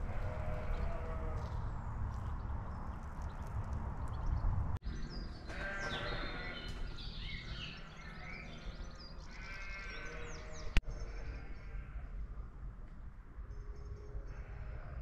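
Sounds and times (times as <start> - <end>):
wavering bleating calls: 0.0 - 1.4, 5.5 - 6.8, 9.3 - 12.1, 14.3 - 15.0
birdsong: 0.0 - 12.1.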